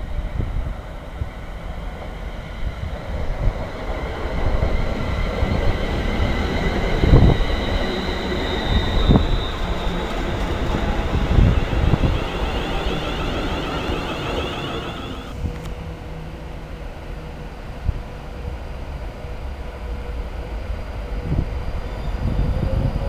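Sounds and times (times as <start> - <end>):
train wheels rumbling on rail: 0.0 - 23.0
thin high whine: 6.2 - 15.5.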